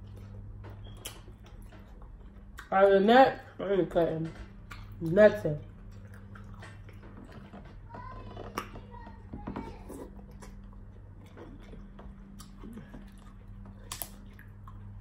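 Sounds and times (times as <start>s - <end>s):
chewing: 0.0s - 2.8s, 4.4s - 15.0s
crab shell cracking: 13.8s - 14.3s.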